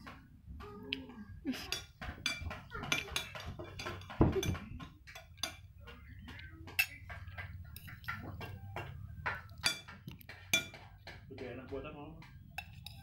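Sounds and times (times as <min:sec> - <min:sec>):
metal spoon scraping a plate: 0:12.6 - 0:13.0.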